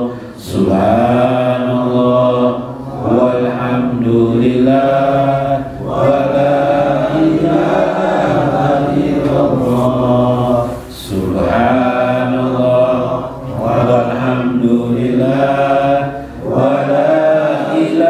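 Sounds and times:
man chanting through microphone: 0:00.0 - 0:18.0.

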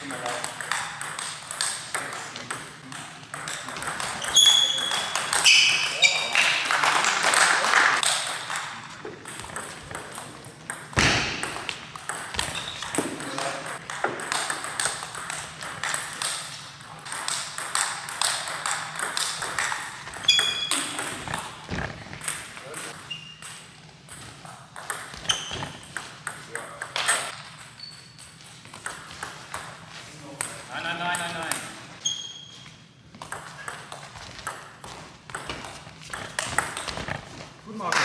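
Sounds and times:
short high squeaks: 0:04.2 - 0:06.3, 0:20.2 - 0:20.9, 0:32.0 - 0:32.8.

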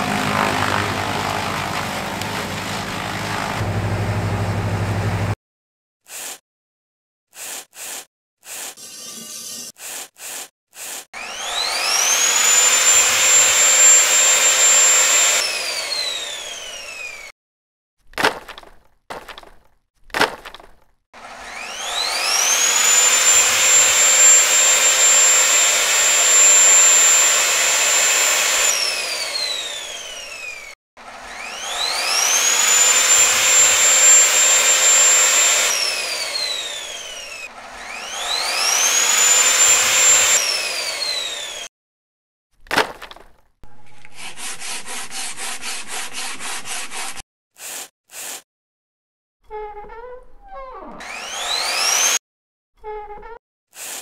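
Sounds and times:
router whining: 0:00.0 - 0:05.4, 0:11.2 - 0:17.3, 0:21.2 - 0:41.7, 0:50.9 - 0:52.2.

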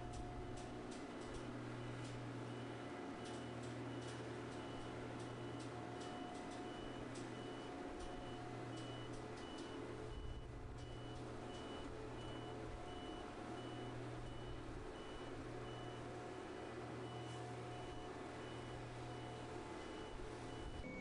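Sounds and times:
low machinery hum: 0:00.0 - 0:21.0
short high warning beeps: 0:17.2 - 0:21.0.

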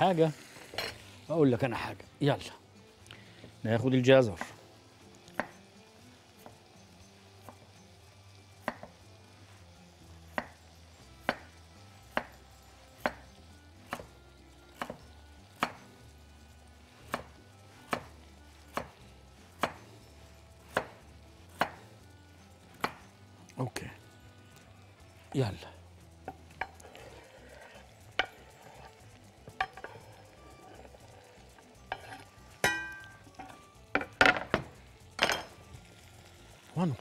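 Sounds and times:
knife chopping on wooden board: 0:08.6 - 0:08.9, 0:10.3 - 0:10.6, 0:13.0 - 0:13.2, 0:14.8 - 0:15.0, 0:15.6 - 0:15.8, 0:17.1 - 0:18.1, 0:18.7 - 0:19.0, 0:19.6 - 0:19.9, 0:20.7 - 0:21.8, 0:22.8 - 0:23.0.

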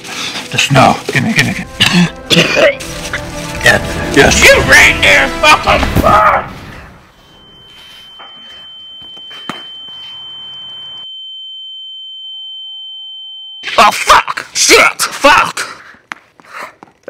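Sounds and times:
loud voices: 0:01.7 - 0:07.0
fainter lower tone: 0:07.2 - 0:13.6
high-pitched ringing tone: 0:07.2 - 0:13.8.

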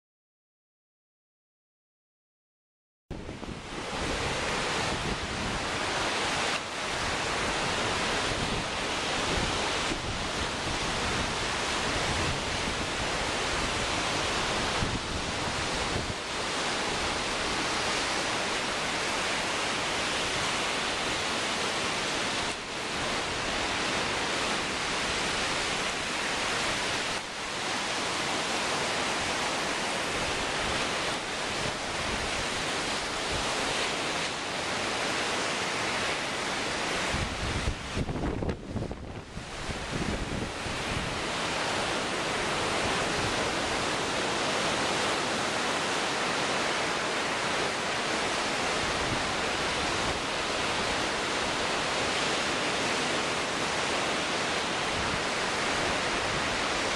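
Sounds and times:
gusting wind on microphone: 0:03.1 - 0:56.9
waves breaking on shore: 0:03.1 - 0:56.9.

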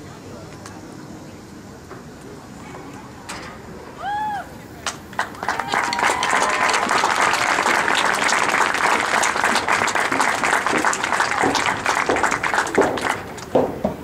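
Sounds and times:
crowd applauding: 0:04.8 - 0:13.7.

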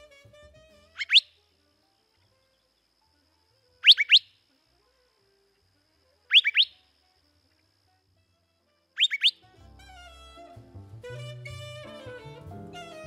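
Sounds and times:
bird whistling call: 0:00.9 - 0:01.4, 0:03.8 - 0:04.4, 0:06.3 - 0:06.8, 0:09.0 - 0:09.4.

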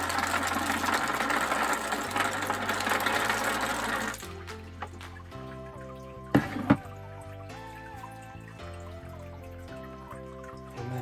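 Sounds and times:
plastic balls clattering: 0:00.0 - 0:05.3
background music: 0:00.0 - 0:11.0.

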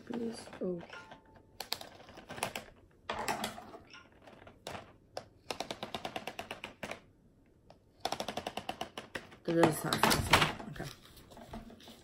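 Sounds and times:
plastic marker pack clicking: 0:00.0 - 0:02.8, 0:03.9 - 0:10.3.

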